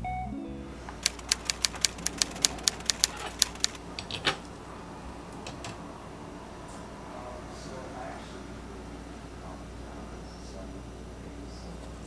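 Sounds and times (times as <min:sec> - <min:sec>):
sharp light clicks: 0:01.0 - 0:03.8.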